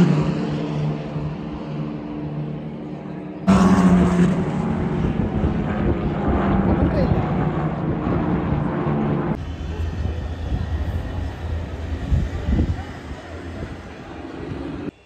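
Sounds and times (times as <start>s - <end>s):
racing car engines droning: 0.0s - 15.0s
voices: 9.4s - 15.0s.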